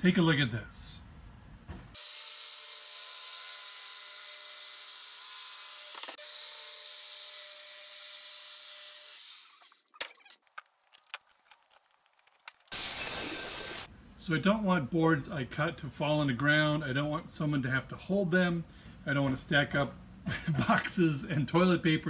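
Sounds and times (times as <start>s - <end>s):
circular saw cutting board: 12.7s - 13.9s.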